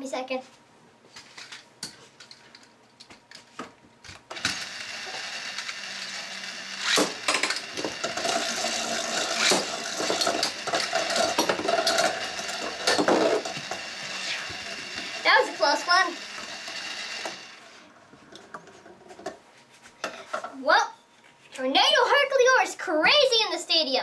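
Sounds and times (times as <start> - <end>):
spinning tops clacking: 4.3 - 17.6
spinning tops whirring on plastic: 4.3 - 17.8.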